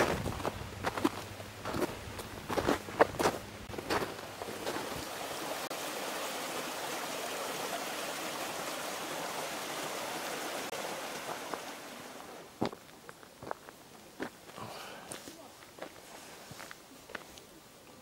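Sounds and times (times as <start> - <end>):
footsteps crunching in snow: 0.0 - 5.2
stream running: 0.0 - 18.0.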